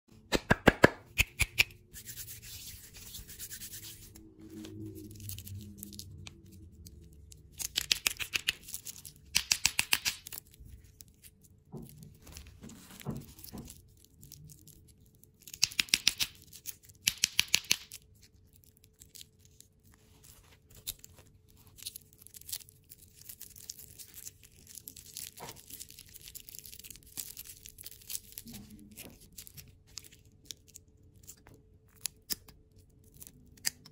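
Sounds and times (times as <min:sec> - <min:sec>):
plastic wrappers crinkling: 0:04.7 - 0:33.6.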